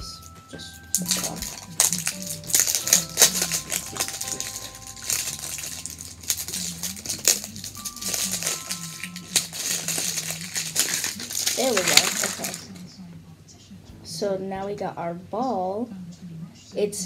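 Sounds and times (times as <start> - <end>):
background music: 0.0 - 13.1, 13.8 - 15.9
plastic wrap crinkling: 0.9 - 12.9.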